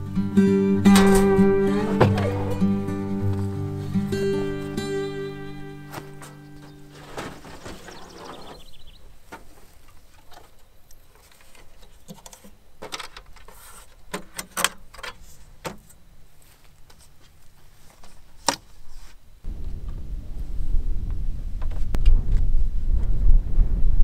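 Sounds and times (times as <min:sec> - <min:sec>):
metal camp table clicks and rattles: 0:09.8 - 0:16.0.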